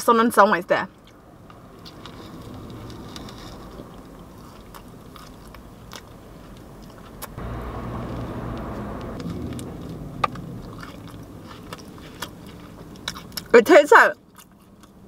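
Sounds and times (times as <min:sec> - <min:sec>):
low steady rumble: 0:00.8 - 0:15.0
person chewing: 0:01.8 - 0:07.4, 0:09.2 - 0:13.5, 0:14.2 - 0:15.0.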